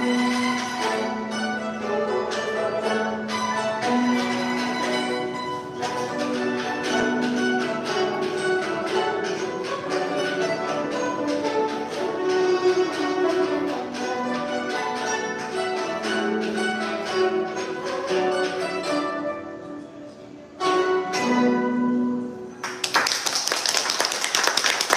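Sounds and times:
plucked zithers playing: 0:00.0 - 0:22.6
audience applause: 0:22.6 - 0:24.9.

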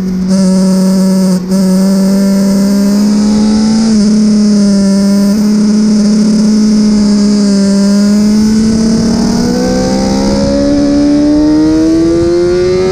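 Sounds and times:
motorcycle engine accelerating: 0:00.0 - 0:12.9
wind rushing: 0:08.0 - 0:12.9.

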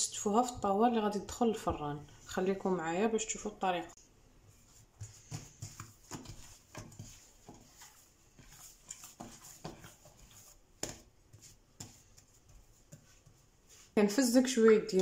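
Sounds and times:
hands slapping bread dough: 0:04.5 - 0:15.0.

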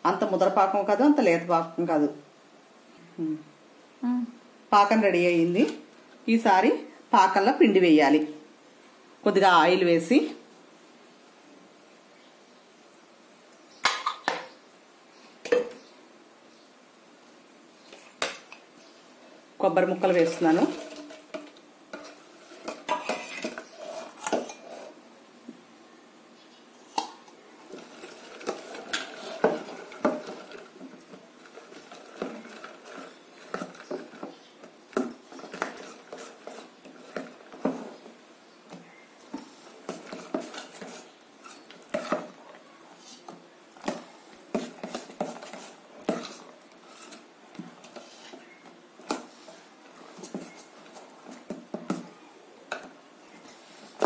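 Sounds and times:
metal spoon scraping a steel pot: 0:20.2 - 0:25.0, 0:27.7 - 0:30.8, 0:35.3 - 0:38.0, 0:39.8 - 0:42.3, 0:44.5 - 0:48.5.

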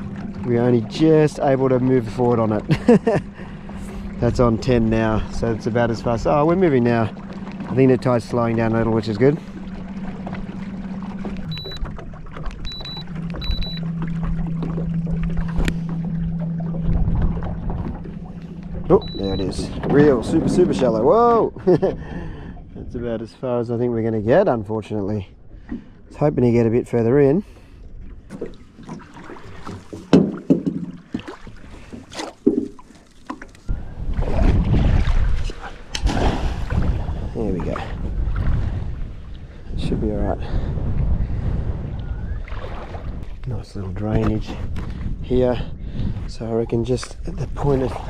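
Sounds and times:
water sloshing: 0:00.0 - 0:23.1, 0:23.9 - 0:39.8, 0:42.2 - 0:48.0
high electronic beeps: 0:11.5 - 0:11.8, 0:12.7 - 0:13.9, 0:18.9 - 0:19.6
net knocking on metal hull: 0:30.0 - 0:31.3.

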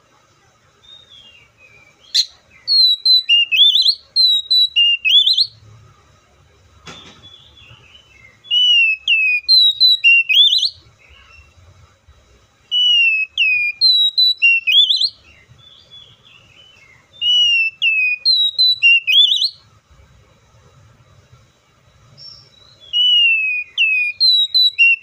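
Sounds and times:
bird singing whistled notes: 0:00.8 - 0:05.6, 0:07.0 - 0:11.6, 0:12.7 - 0:19.7, 0:22.1 - 0:25.0.

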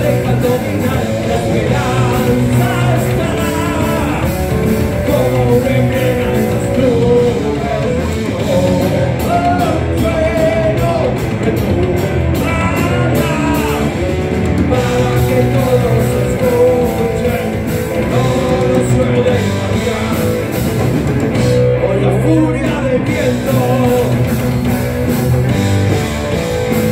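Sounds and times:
person singing: 0:00.0 - 0:20.8, 0:21.8 - 0:24.4
heavy metal band playing: 0:00.0 - 0:26.9.

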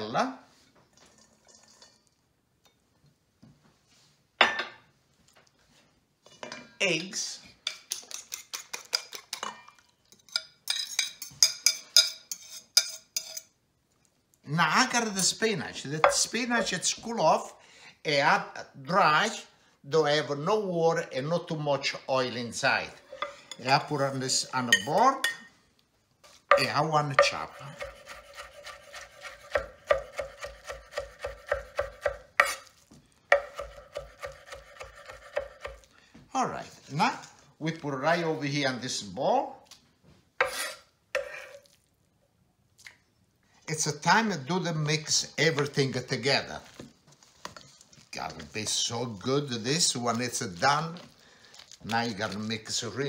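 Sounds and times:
knife chopping on wooden board: 0:26.5 - 0:32.7, 0:33.3 - 0:35.8.

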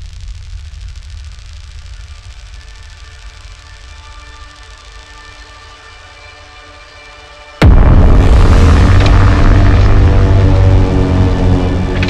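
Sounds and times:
deep low rumble: 0:00.0 - 0:02.6, 0:07.6 - 0:12.0
fluttering static noise: 0:00.0 - 0:06.7, 0:08.3 - 0:12.0.

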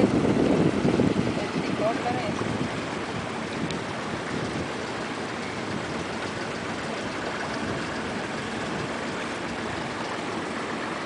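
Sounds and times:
boat engine: 0:00.0 - 0:11.0
water noise: 0:00.0 - 0:11.0.

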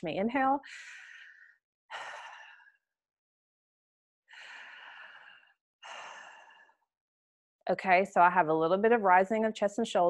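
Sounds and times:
woman breathing deeply: 0:00.6 - 0:02.8, 0:04.3 - 0:06.9.

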